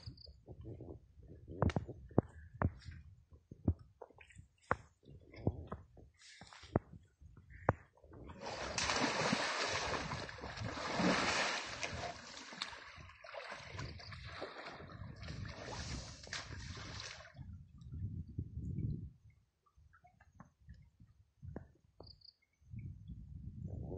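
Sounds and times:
elephant splashing in water: 0:08.4 - 0:17.3.

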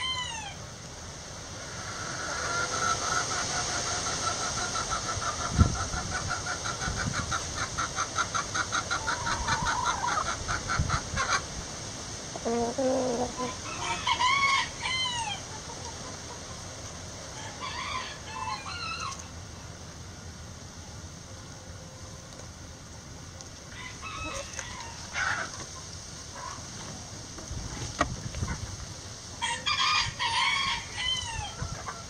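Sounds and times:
chicken squawk calls: 0:00.0 - 0:00.6, 0:01.8 - 0:11.5, 0:12.3 - 0:16.6, 0:23.7 - 0:26.7, 0:29.4 - 0:32.0
chickens clucking: 0:01.5 - 0:19.4, 0:20.8 - 0:32.0.

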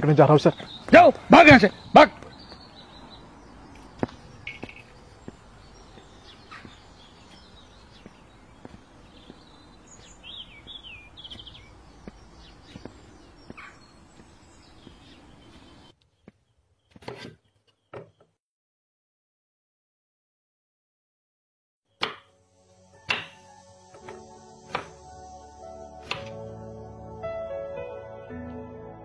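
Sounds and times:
birds chirping: 0:00.0 - 0:18.4.

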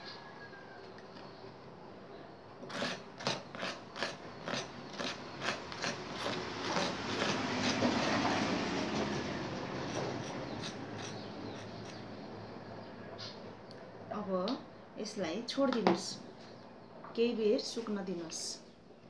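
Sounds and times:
tool scraping inside shell: 0:02.7 - 0:09.1, 0:09.8 - 0:12.0.

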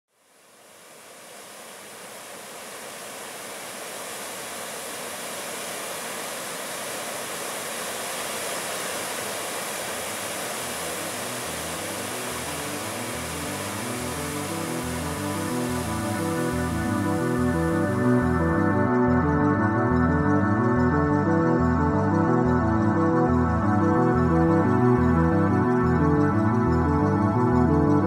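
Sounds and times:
river rapids rushing: 0:00.7 - 0:17.4
music with low stepped notes: 0:10.8 - 0:28.0.

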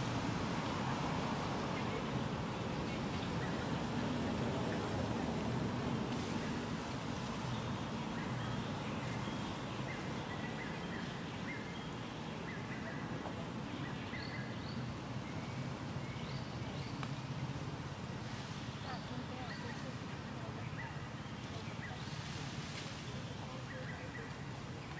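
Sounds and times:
outdoor background rumble: 0:00.0 - 0:22.8.

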